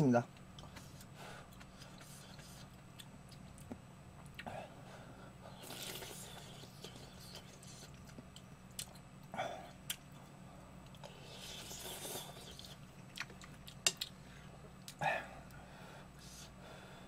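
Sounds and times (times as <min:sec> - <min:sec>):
quiet chewing with clicks: 0:00.3 - 0:04.6, 0:05.8 - 0:11.2, 0:11.8 - 0:15.6
slurping noodles: 0:05.5 - 0:07.9, 0:11.2 - 0:12.8.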